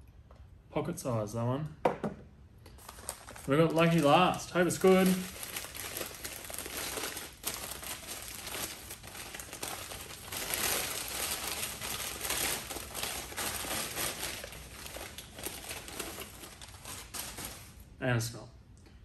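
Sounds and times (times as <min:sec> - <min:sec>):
newspaper crinkling and crackling: 0:02.7 - 0:17.9.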